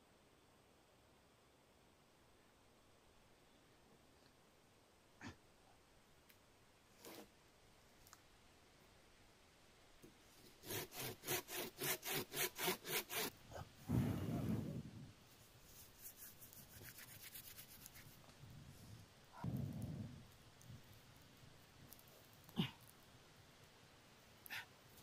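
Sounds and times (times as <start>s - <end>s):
tool rasping on dry branch: 10.4s - 13.3s.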